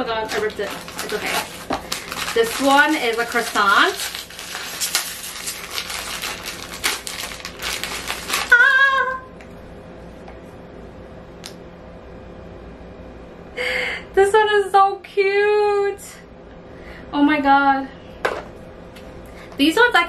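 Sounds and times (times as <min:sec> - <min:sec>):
foil wrapper crinkling and tearing: 0:00.0 - 0:08.9
high-pitched vocal exclamation: 0:08.5 - 0:09.3.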